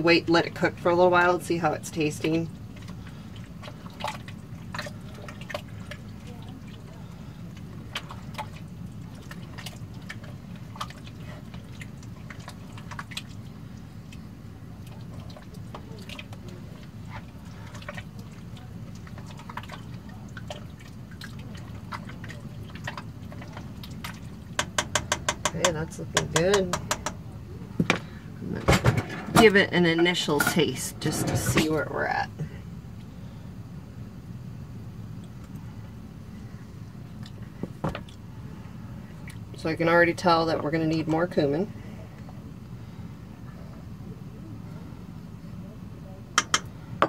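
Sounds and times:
spoon stirring thick chili: 1.9s - 27.3s.

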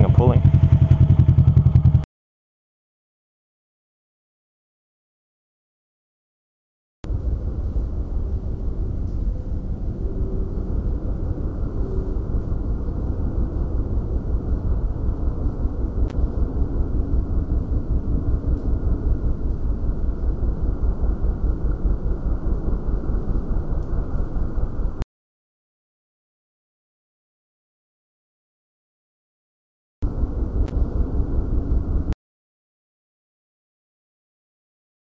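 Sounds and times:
motorcycle engine rumble: 0.0s - 2.1s, 7.1s - 25.0s, 30.0s - 32.2s
wind noise: 7.1s - 25.0s, 30.0s - 32.2s.

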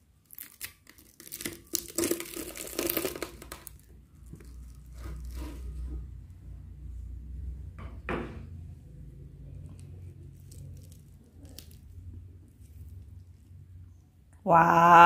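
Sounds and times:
fried wrapper crackling: 0.0s - 5.8s, 9.8s - 13.4s.

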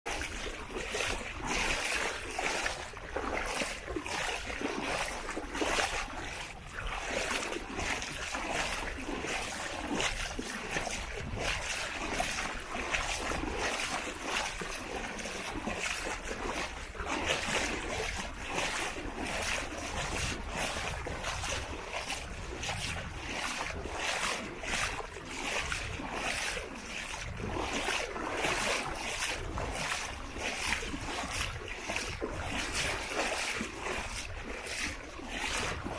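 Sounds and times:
small waves washing: 0.1s - 35.9s
wind buffeting microphone: 6.6s - 13.9s, 17.8s - 24.0s, 27.1s - 27.9s.

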